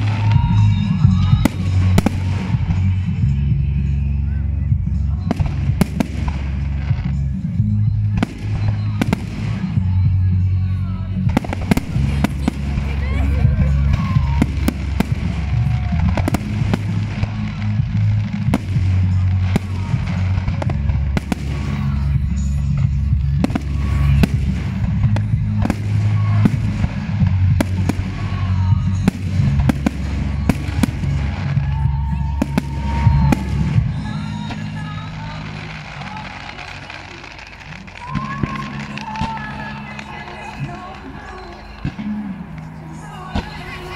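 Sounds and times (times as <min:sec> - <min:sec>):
low rumble: 0:00.0 - 0:36.0
fireworks bangs and crackling: 0:00.0 - 0:43.9.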